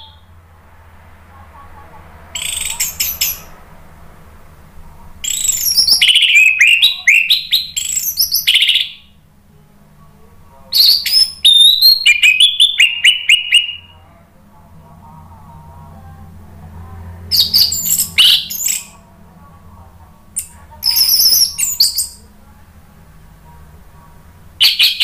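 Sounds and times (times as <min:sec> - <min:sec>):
faint low hum: 0:00.0 - 0:25.0
thrush singing whistled phrases: 0:02.3 - 0:03.5, 0:05.2 - 0:09.2, 0:10.7 - 0:14.0, 0:17.3 - 0:19.0, 0:20.4 - 0:22.3, 0:24.6 - 0:25.0.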